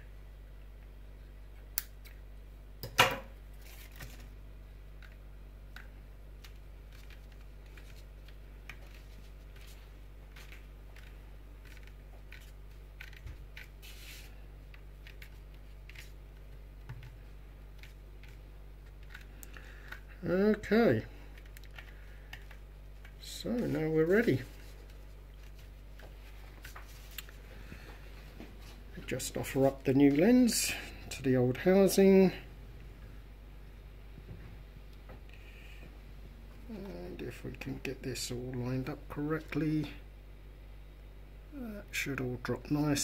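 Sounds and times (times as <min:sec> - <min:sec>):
steady low hum: 0:00.0 - 0:43.0
handling rustles and ticks: 0:04.9 - 0:20.1, 0:21.2 - 0:30.5.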